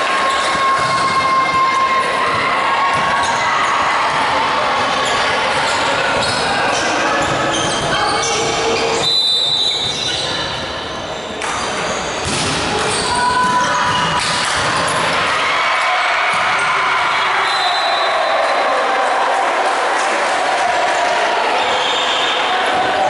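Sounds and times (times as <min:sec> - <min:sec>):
players' voices and calls: 0:00.0 - 0:23.0
shoe squeaks on court floor: 0:05.0 - 0:15.0
ball bouncing: 0:11.4 - 0:15.1.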